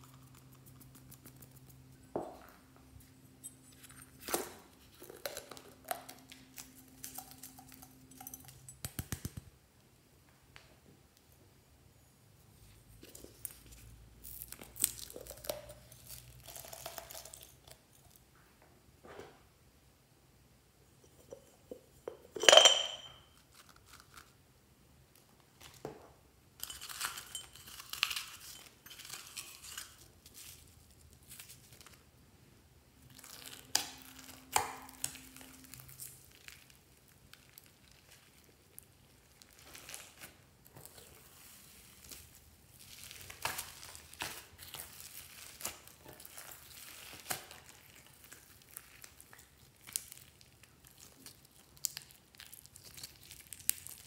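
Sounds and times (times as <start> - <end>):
glitter and charms rustling: 2.9 - 8.8
glass bowl clinking: 7.0 - 8.8, 21.0 - 23.4, 26.6 - 29.2.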